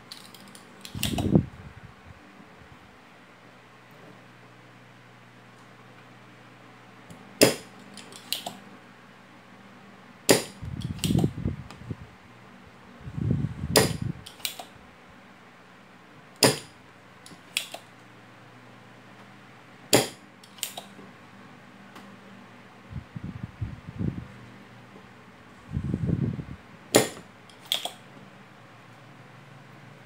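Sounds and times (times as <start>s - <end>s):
desoldering pump snapping: 0.1s - 1.3s
small clicks: 7.8s - 8.6s, 14.2s - 14.7s, 17.2s - 17.9s, 20.4s - 20.9s, 27.5s - 28.0s.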